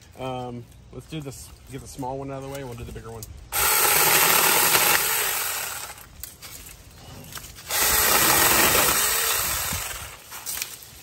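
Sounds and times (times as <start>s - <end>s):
cordless chainsaw cutting branches: 3.6s - 6.1s, 7.6s - 10.8s.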